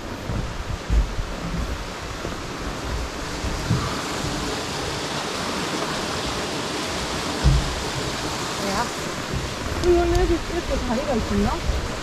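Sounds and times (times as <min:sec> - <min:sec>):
mountain stream rushing: 0:00.0 - 0:12.0
soft footstep thumps: 0:00.1 - 0:04.4.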